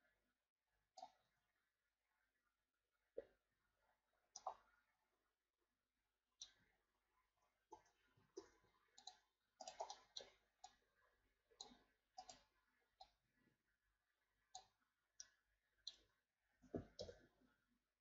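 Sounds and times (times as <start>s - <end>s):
mouse and keyboard clicks: 8.4s - 10.4s, 16.8s - 17.2s.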